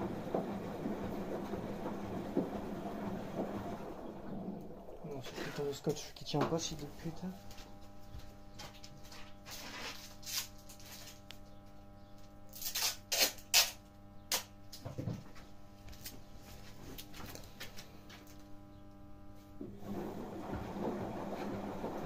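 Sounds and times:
steady low hum: 0.0 - 22.0
adhesive tape ripping: 9.9 - 11.2, 12.5 - 14.5.

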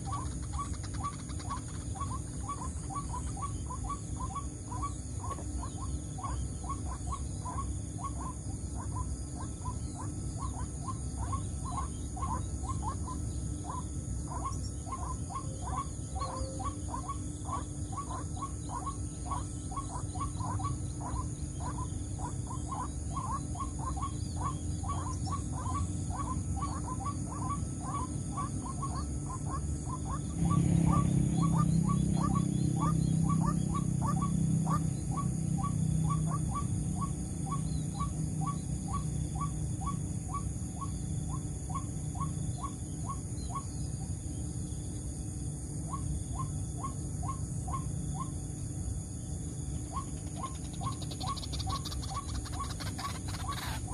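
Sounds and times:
waterhen calling: 0.0 - 43.6, 49.9 - 53.9
low hum: 0.0 - 53.9.

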